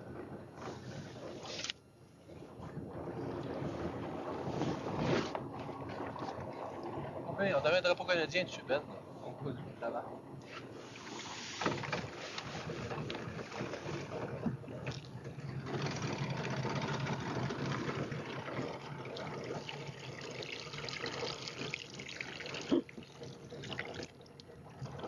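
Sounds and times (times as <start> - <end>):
river water splashing and trickling: 2.9 - 9.1, 10.4 - 25.0.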